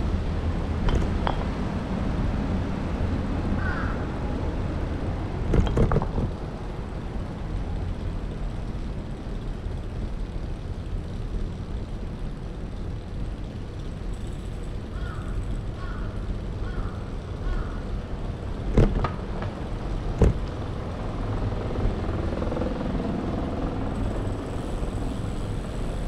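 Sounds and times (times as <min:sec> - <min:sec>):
traffic rumble: 0:00.0 - 0:26.0
knocks and clatter: 0:00.8 - 0:01.7, 0:05.5 - 0:06.4, 0:18.7 - 0:20.6.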